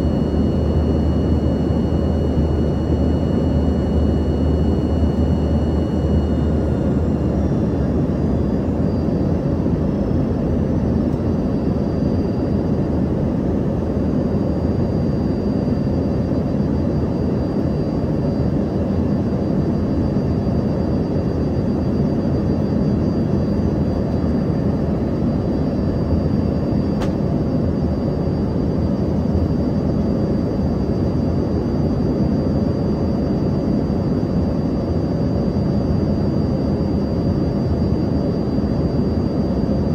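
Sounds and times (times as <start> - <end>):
thin high whine: 0.0 - 29.9
jet engine cabin roar: 0.0 - 39.9.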